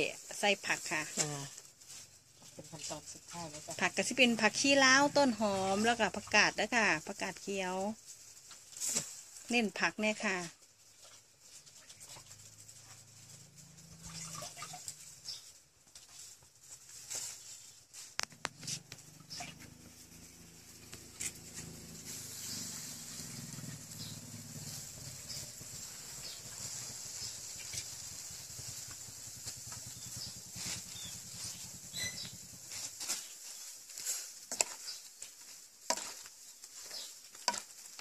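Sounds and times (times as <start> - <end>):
wood fire crackling and popping: 18.1 - 38.0
pot steaming hiss: 21.4 - 33.0.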